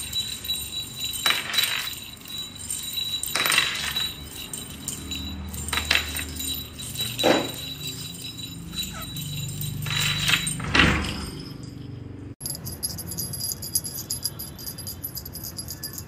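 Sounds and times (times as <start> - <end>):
cat collar bell jingling: 0.0 - 16.0.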